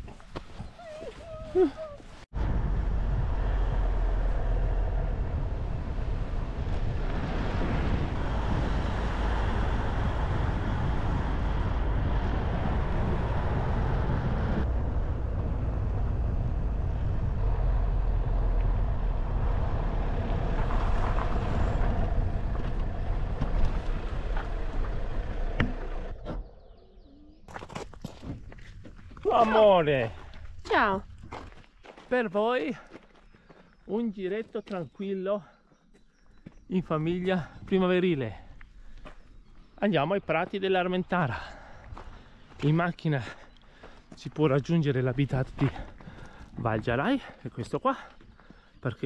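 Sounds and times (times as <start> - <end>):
car engine tyre and wind noise: 0.0 - 31.6, 36.1 - 47.4.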